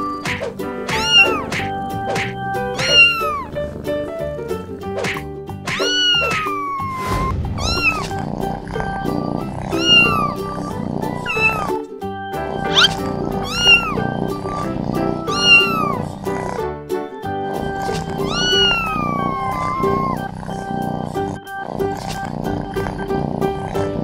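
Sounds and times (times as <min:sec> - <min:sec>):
background music: 0:00.0 - 0:24.0
kittens meowing: 0:00.8 - 0:03.6, 0:05.7 - 0:11.8, 0:12.6 - 0:16.6, 0:17.6 - 0:21.3.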